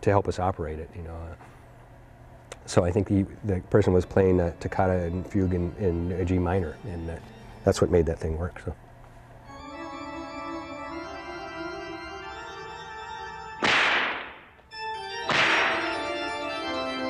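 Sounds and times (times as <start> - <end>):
organ music sustained chords: 2.6 - 17.0
whip lashes cracking: 13.6 - 14.5, 15.2 - 16.0.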